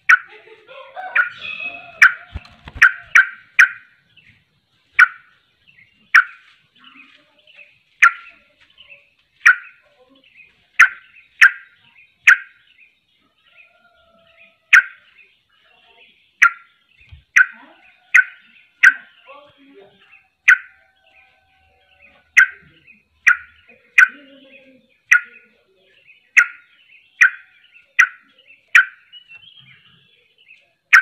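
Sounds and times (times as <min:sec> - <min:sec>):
bird calling in sharp notes: 0:01.1 - 0:04.0, 0:05.0 - 0:05.4, 0:06.1 - 0:06.6, 0:08.0 - 0:08.4, 0:09.4 - 0:09.8, 0:10.8 - 0:12.8, 0:14.7 - 0:15.2, 0:16.3 - 0:19.4, 0:20.0 - 0:31.0
wings fluttering: 0:01.5 - 0:03.3.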